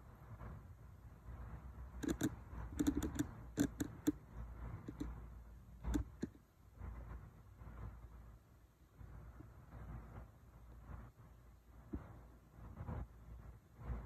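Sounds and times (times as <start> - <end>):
sharp clicks and taps: 2.0 - 4.2, 4.8 - 5.2.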